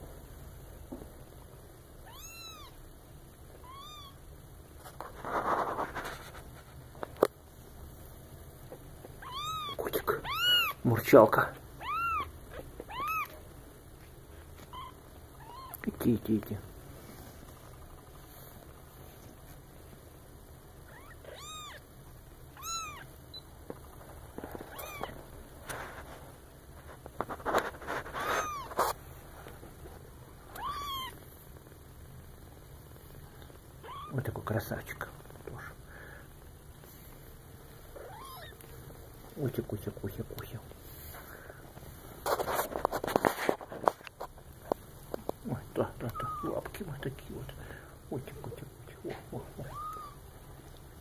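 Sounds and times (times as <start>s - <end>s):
rustle: 0.0s - 51.0s
kitten mewing: 2.0s - 2.8s, 3.5s - 4.2s, 8.7s - 10.9s, 11.8s - 13.4s, 14.6s - 15.9s, 20.8s - 21.9s, 22.5s - 23.2s, 24.6s - 25.2s, 27.9s - 29.0s, 30.5s - 31.2s, 33.8s - 34.2s, 37.9s - 38.7s, 45.9s - 46.8s, 48.1s - 50.3s.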